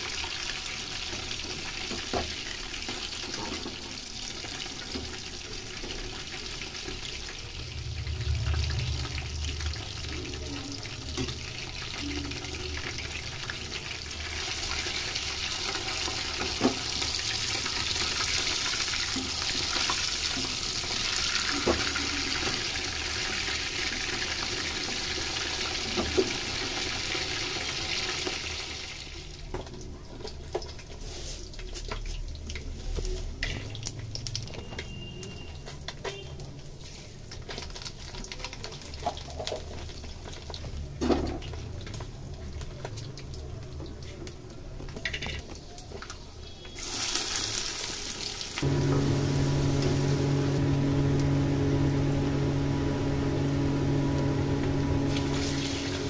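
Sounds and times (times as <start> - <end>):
fish sizzling in hot oil: 0.0 - 44.3, 45.1 - 56.0.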